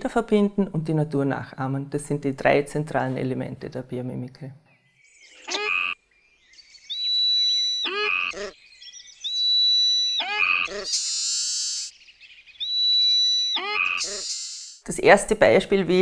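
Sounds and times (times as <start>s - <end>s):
falling croaking warble: 5.3s - 6.0s, 6.9s - 8.6s, 9.2s - 11.9s, 12.5s - 14.8s
high whistle-like tone: 10.9s - 11.9s.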